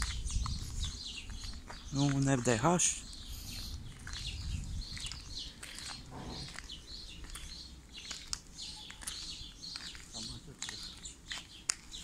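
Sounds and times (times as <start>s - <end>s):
small birds chirping: 0.0s - 12.0s
low rumble: 3.4s - 7.2s.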